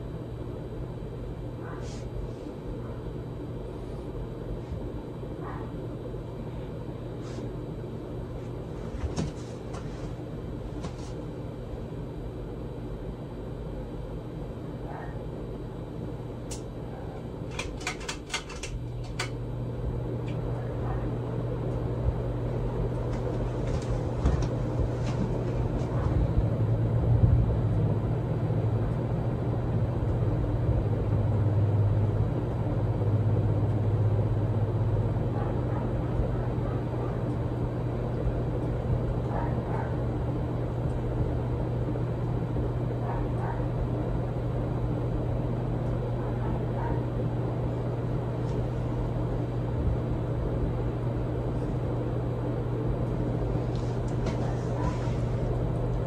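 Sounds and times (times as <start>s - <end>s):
ceiling fan motor hum: 0.0s - 56.0s
fan clicks: 16.4s - 20.6s, 22.5s - 26.6s, 53.0s - 56.0s.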